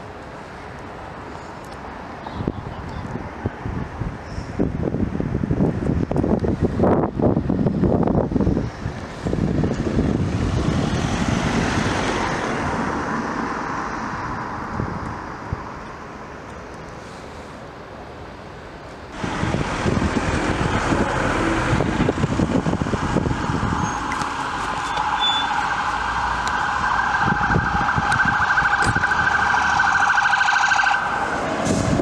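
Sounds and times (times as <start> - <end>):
road traffic: 0.0 - 32.0
wind buffeting microphone: 2.4 - 16.0, 19.1 - 32.0
van passing close: 19.1 - 32.0.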